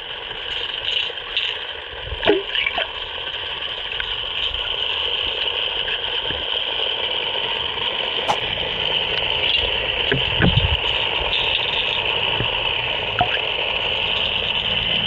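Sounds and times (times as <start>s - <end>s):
sharp click: 8.2s - 8.5s.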